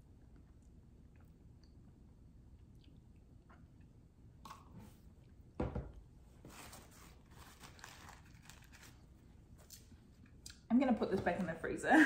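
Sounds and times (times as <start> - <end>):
plastic cup thump: 5.6 - 5.9.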